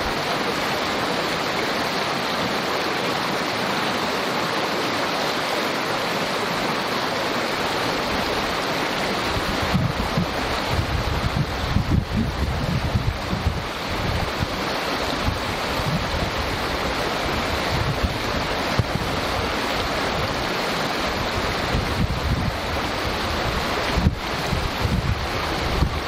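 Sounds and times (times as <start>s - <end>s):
creek babbling: 0.0s - 26.0s
wind buffeting microphone: 9.2s - 20.5s, 21.1s - 26.0s.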